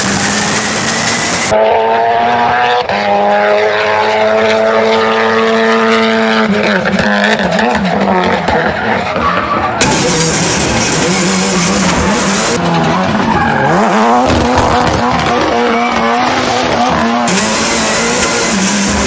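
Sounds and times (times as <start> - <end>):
rally car engine at high revs: 0.0 - 19.0
exhaust cracks: 6.7 - 19.0.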